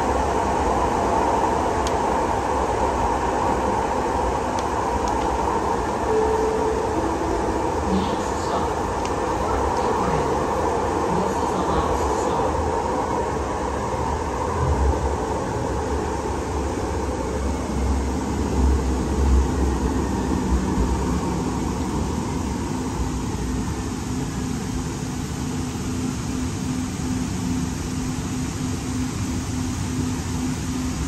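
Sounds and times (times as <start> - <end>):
rumble of wheels and track: 0.0 - 31.0
steady low hum: 0.0 - 31.0.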